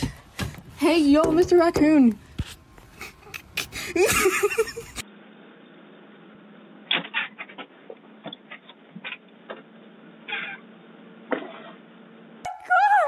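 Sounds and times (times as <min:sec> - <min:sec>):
knocks and taps: 0:00.0 - 0:02.6.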